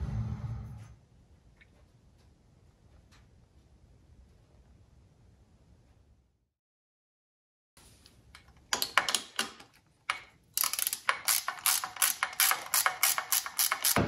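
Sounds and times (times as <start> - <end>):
ratchet wrench clicking: 10.1 - 14.0.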